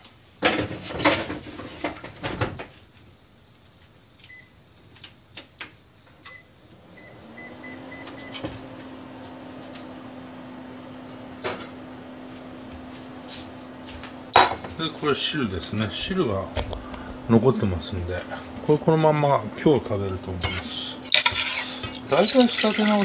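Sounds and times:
microwave oven humming: 0.5 - 23.0
microwave keypad beeping: 4.2 - 4.6, 6.2 - 8.4.

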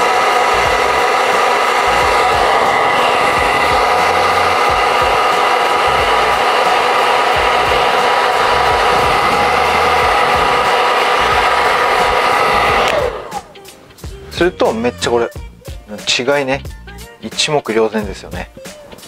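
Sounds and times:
hair dryer running: 0.0 - 13.6.

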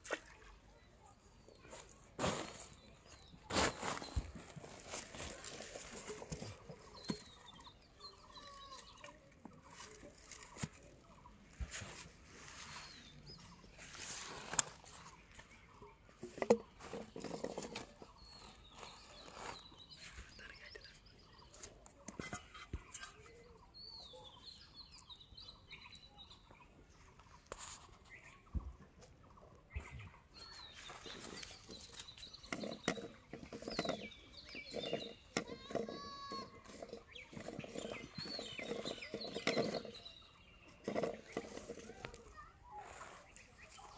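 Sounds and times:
small birds chirping: 0.0 - 43.9
hands working bamboo and sack: 1.6 - 15.6, 16.2 - 20.4, 26.9 - 28.4, 30.4 - 43.9.

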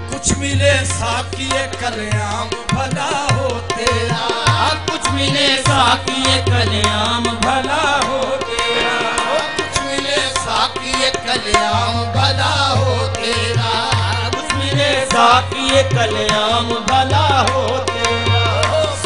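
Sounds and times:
tabla playing: 0.0 - 19.0
ornamented melody line: 8.5 - 12.6.

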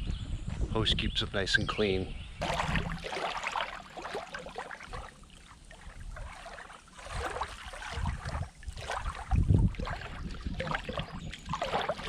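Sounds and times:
lake waves lapping and splashing: 2.4 - 12.0.

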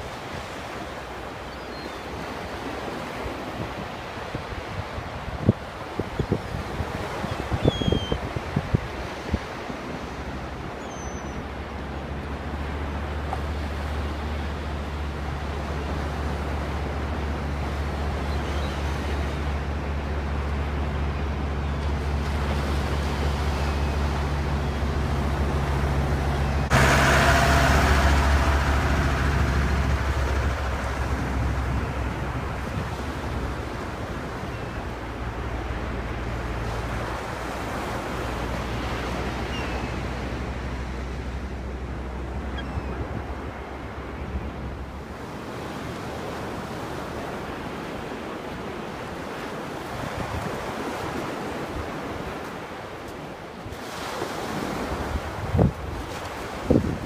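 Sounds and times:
waves breaking on beach: 0.0 - 57.0
loud wave crash: 25.9 - 33.0.

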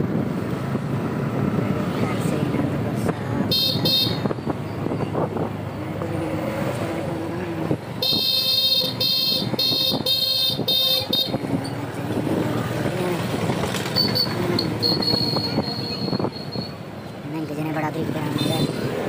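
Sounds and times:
street traffic noise: 0.0 - 19.0
vehicle horn beeps: 3.5 - 4.3, 8.0 - 11.4, 14.0 - 16.8.

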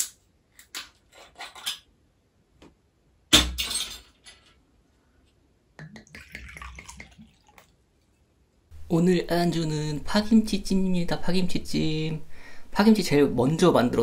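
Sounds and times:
liquid glugging from glass bottle: 5.8 - 7.7.

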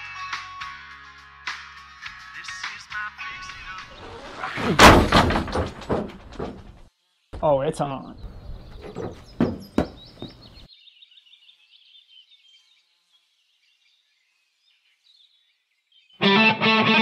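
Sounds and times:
background noise: 0.0 - 17.0
sharp knocks: 4.7 - 6.8, 8.8 - 10.6
faint high chirping: 8.0 - 11.6
distorted electric guitar music: 16.2 - 17.0.

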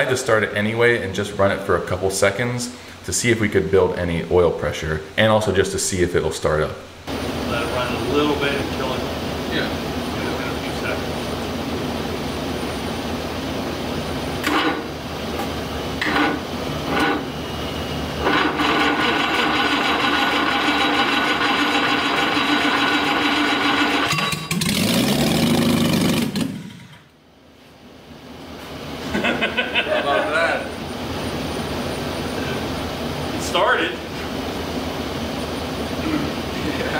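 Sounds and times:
engine cranking on starter: 18.2 - 27.1.

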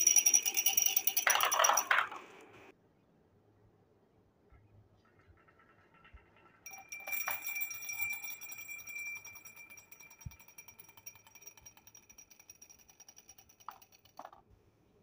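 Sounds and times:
bell-like jingling: 0.0 - 1.9, 6.7 - 14.0
fast rattling ticks: 5.1 - 14.4.

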